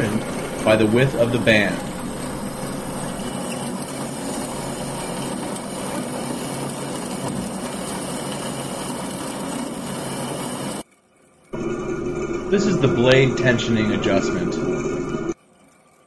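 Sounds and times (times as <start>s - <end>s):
bandsaw cutting wood: 0.0s - 10.8s.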